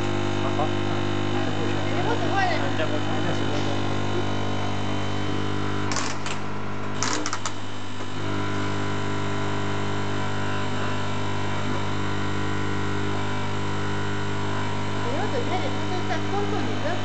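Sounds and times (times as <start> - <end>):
vibratory machine buzzing hum: 0.0 - 17.0.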